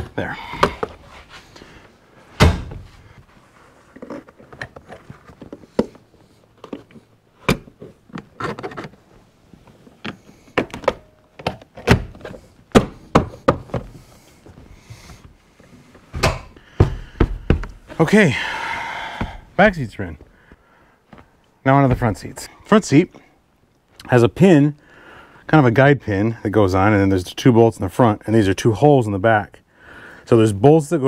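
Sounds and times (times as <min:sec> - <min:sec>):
plastic trim thunks and knocks: 0:16.2 - 0:17.9.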